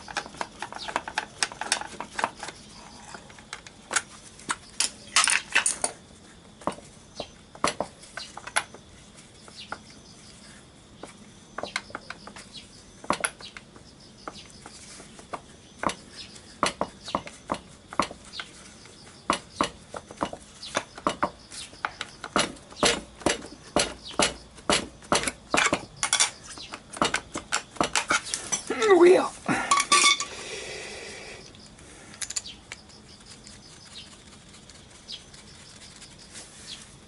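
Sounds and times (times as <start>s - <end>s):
metal tools clicking on bolts: 25.1s - 26.4s, 29.7s - 30.4s, 32.1s - 32.8s.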